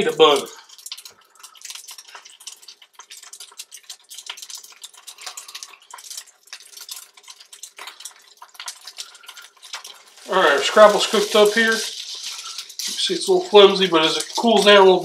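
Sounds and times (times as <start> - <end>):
slices sizzling in hot oil: 0.0 - 15.0.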